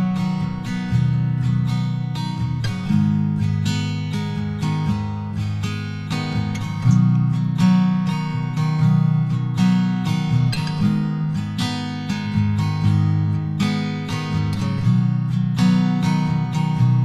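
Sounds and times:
acoustic guitar strumming chords: 0:00.0 - 0:17.0.

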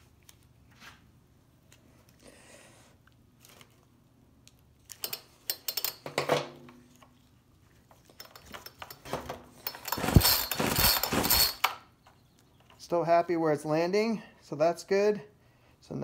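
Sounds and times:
pull cord rasping and knocking: 0:08.4 - 0:11.8.

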